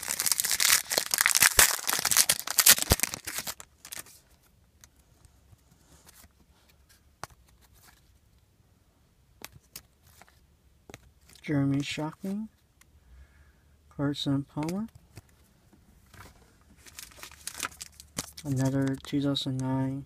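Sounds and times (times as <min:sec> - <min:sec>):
card pack wrapper crinkling and tearing: 0:00.0 - 0:04.2, 0:16.8 - 0:19.2.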